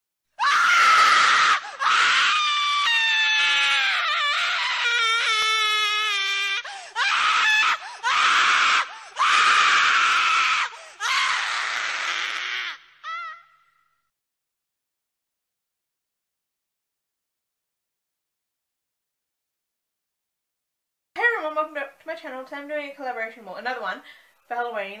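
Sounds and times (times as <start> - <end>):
person screaming: 0.4 - 13.5.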